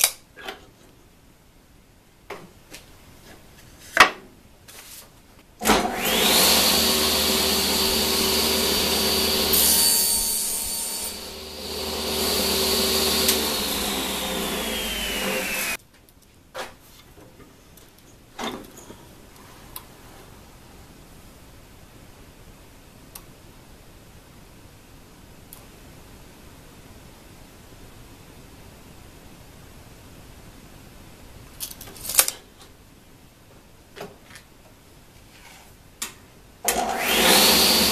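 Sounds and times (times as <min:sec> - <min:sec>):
table saw cutting plywood: 0:05.6 - 0:15.8, 0:36.7 - 0:37.9.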